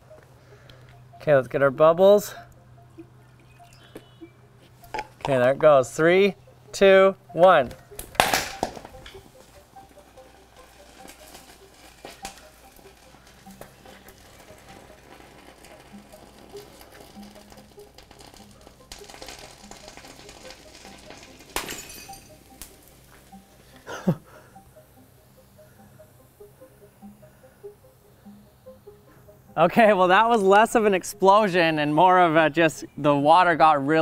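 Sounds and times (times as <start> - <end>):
fizzing crackle: 8.2 - 23.0
glass bowl cracking: 15.5 - 22.8.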